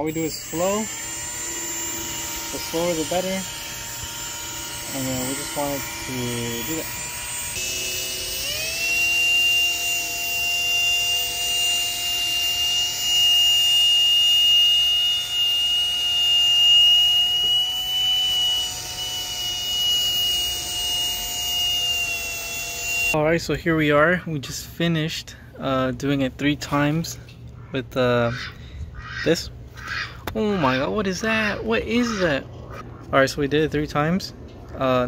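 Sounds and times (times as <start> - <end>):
drill motor whine: 0.0 - 23.2.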